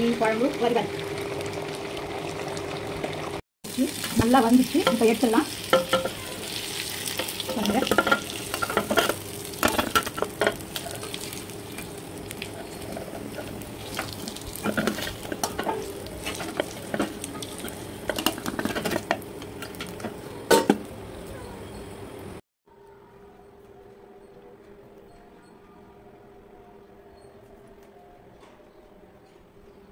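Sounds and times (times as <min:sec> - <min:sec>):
fish sizzling in oil: 0:00.0 - 0:20.1
clinks and scrapes on pan: 0:07.1 - 0:11.2, 0:12.4 - 0:20.8.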